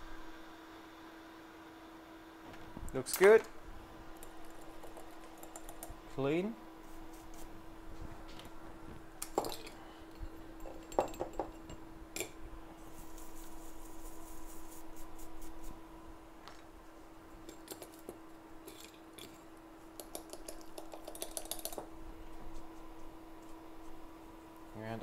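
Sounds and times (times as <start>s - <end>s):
electrical hum: 0.0s - 25.0s
high scratchy hiss: 12.8s - 15.9s.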